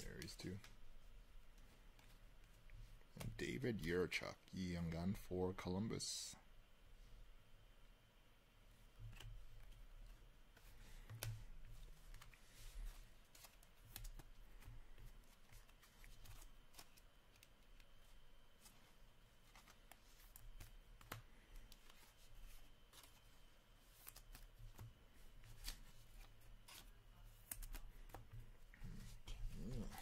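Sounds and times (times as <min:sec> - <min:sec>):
low steady hum: 0:00.0 - 0:30.0
cards clicking and rustling: 0:10.6 - 0:28.5.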